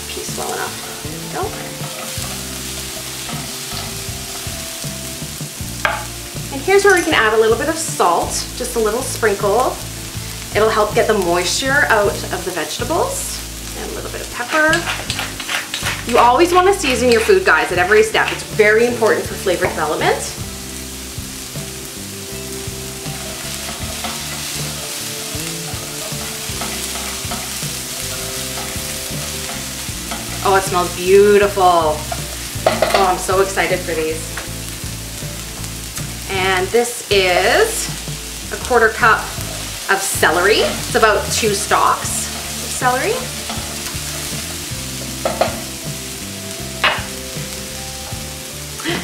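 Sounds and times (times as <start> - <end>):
food sizzling in a frying pan: 0.0 - 49.0
spatula stirring in a pan: 22.3 - 33.2, 37.9 - 45.8.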